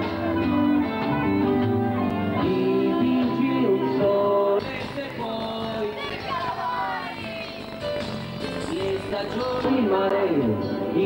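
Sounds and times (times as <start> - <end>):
instrumental backing music: 0.0 - 11.0.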